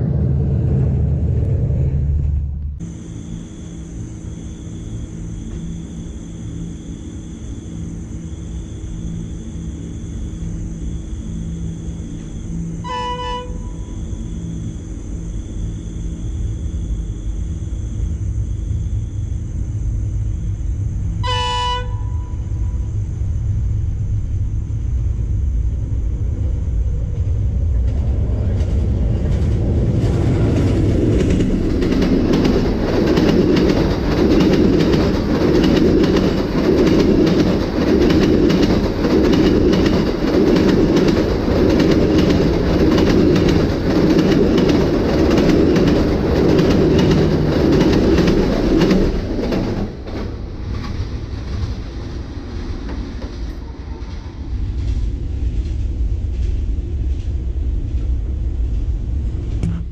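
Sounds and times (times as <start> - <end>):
low engine rumble: 0.0 - 59.9
train horn toots: 12.8 - 14.6, 21.2 - 22.9
wheels clattering on rails: 26.4 - 59.9.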